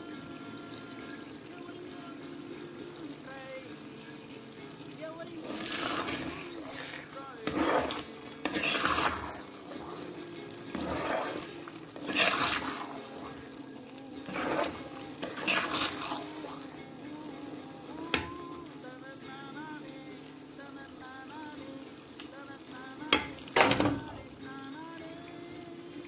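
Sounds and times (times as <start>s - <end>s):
ghee sizzling: 0.0s - 26.0s
metal spatula scraping iron pan: 5.4s - 13.4s, 14.2s - 16.7s.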